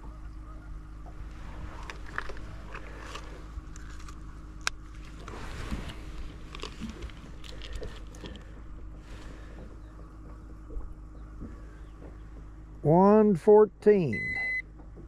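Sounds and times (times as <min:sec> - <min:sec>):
clicks and rustling of handling: 0:01.7 - 0:08.7.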